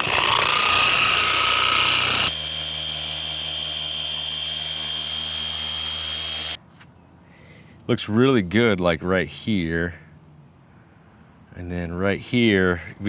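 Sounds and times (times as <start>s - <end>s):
orbital polisher motor whine: 0.0s - 6.6s.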